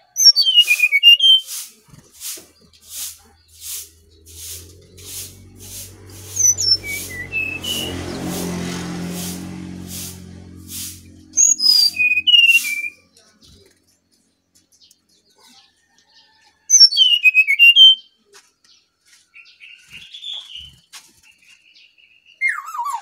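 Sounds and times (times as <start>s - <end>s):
bird whistled song: 0.2s - 1.7s, 6.4s - 7.9s, 11.4s - 13.1s, 16.7s - 18.1s, 22.0s - 23.0s
soft bird twittering: 0.4s - 8.4s, 10.2s - 14.0s.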